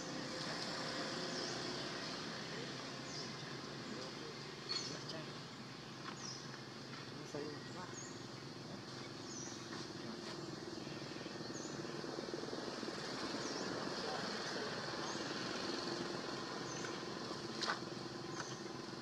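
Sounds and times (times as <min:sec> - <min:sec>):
low motor hum: 0:00.0 - 0:19.0
bird chirping: 0:01.2 - 0:19.0.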